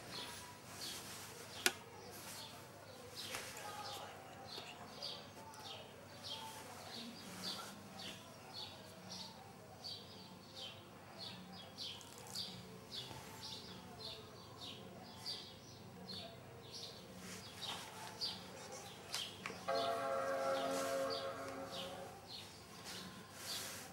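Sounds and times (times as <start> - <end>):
faint low hum: 15.8 - 23.5.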